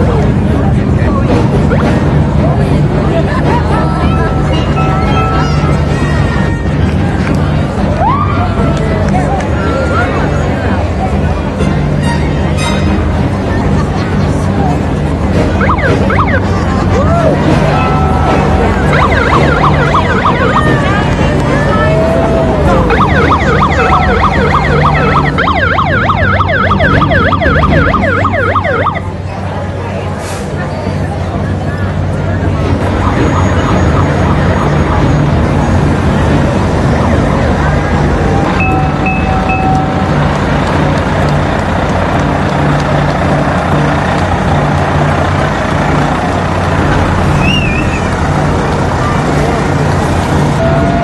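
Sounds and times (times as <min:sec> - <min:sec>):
vehicle engines rumbling: 0:00.0 - 0:51.0
fire siren yelping: 0:15.6 - 0:16.6, 0:17.7 - 0:29.1, 0:32.9 - 0:35.4
diesel truck engine driving past: 0:28.1 - 0:51.0.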